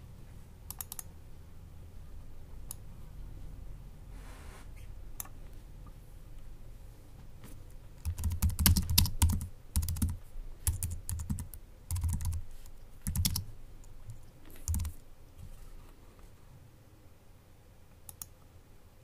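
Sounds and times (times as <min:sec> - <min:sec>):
keyboard typing clicks: 0:00.7 - 0:01.1, 0:08.0 - 0:12.4, 0:13.0 - 0:13.5, 0:14.1 - 0:15.0, 0:18.1 - 0:18.4.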